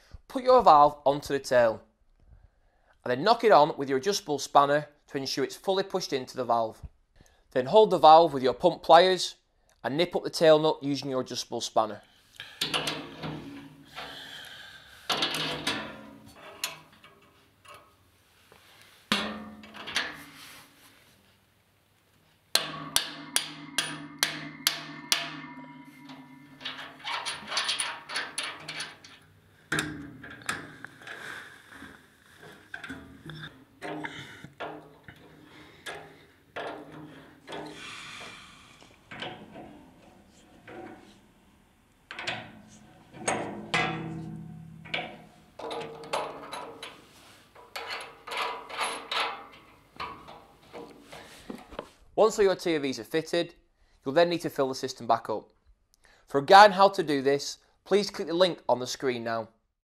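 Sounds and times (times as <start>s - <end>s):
spanner clinking on metal fittings: 12.6s - 14.1s, 15.1s - 17.9s, 22.5s - 31.2s, 32.5s - 37.7s, 42.1s - 51.2s
metal tools clicking and knocking: 12.6s - 14.2s, 15.1s - 17.9s, 19.1s - 20.3s, 22.5s - 31.3s, 32.4s - 37.8s, 39.1s - 41.2s, 42.1s - 51.2s
metal rubbing scrape: 15.2s - 17.4s, 22.6s - 29.2s
loud ringing knocks: 22.6s - 26.9s.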